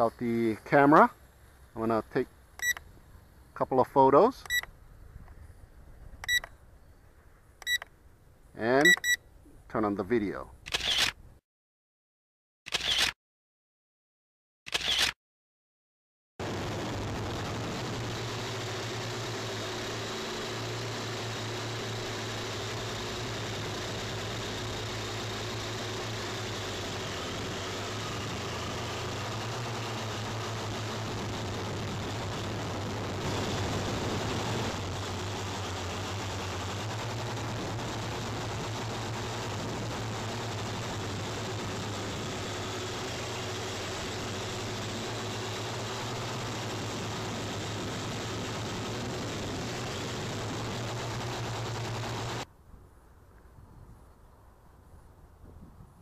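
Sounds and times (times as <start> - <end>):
loud rush: 16.4 - 52.4.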